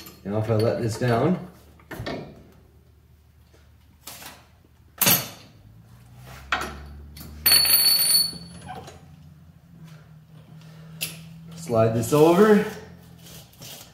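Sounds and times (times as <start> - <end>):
metal clanks and knocks: 6.5 - 9.0.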